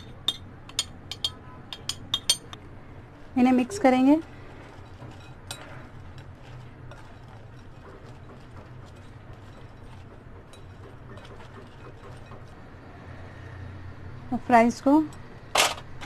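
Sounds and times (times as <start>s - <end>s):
spoon tapping glass bowl: 0.0s - 2.6s.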